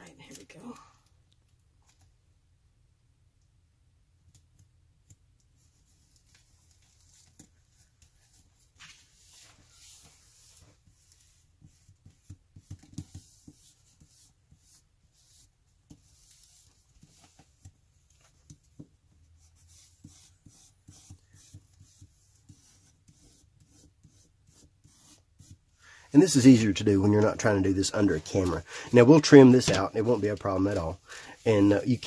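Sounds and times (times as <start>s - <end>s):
scratchy strokes on paper: 5.6s - 32.0s
paper rustling: 5.9s - 11.4s, 26.2s - 32.0s.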